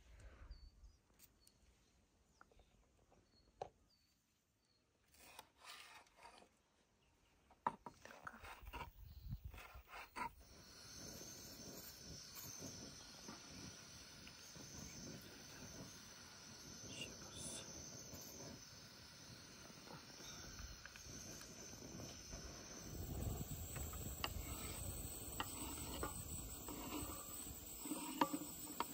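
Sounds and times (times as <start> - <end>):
faint bird chirps: 0.1 - 5.0, 9.0 - 28.9
high insect buzz: 9.9 - 28.9.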